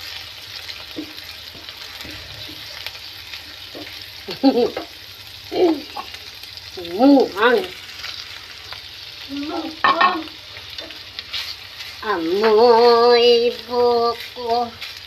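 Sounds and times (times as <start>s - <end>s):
food sizzling in a frying pan: 0.0s - 15.0s
spatula stirring in pan: 0.1s - 5.0s, 7.8s - 15.0s
person speaking: 12.0s - 14.8s.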